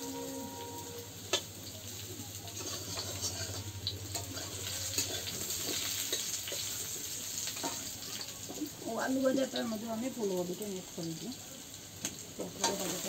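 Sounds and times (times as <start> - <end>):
potatoes sizzling in oil: 0.0 - 13.0
metal spatula scraping pan: 2.5 - 6.8.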